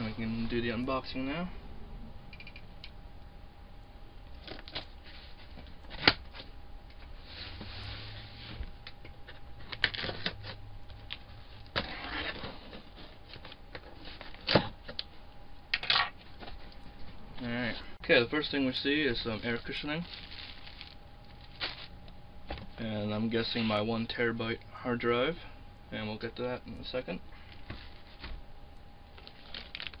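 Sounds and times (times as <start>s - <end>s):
tape and cardboard tearing: 9.6s - 10.6s, 11.7s - 13.6s.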